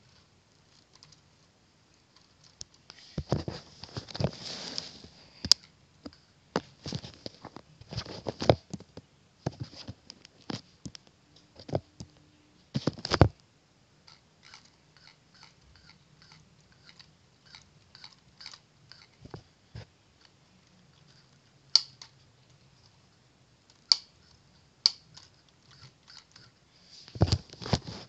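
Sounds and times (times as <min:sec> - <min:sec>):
plastic parts clicking and knocking: 0:02.1 - 0:04.3, 0:12.8 - 0:13.4, 0:14.1 - 0:20.4.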